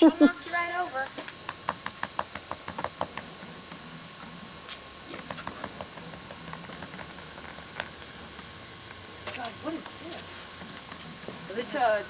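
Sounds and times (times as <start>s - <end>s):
faint steady hum: 0.0s - 12.0s
dog claws tapping on concrete: 1.2s - 3.3s.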